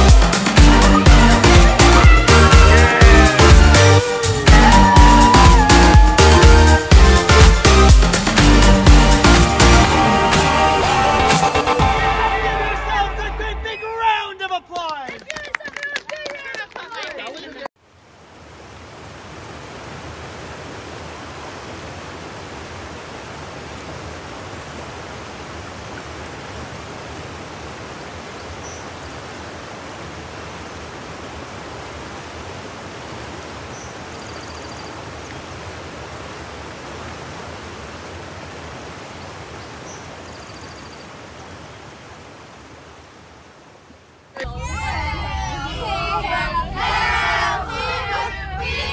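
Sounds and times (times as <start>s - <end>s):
creek rushing over a weir: 17.8s - 34.3s, 34.9s - 44.3s.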